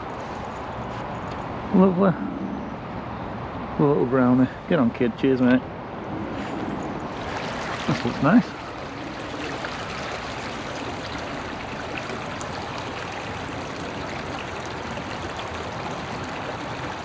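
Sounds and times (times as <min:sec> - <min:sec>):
river flowing over shallows: 0:06.1 - 0:17.0.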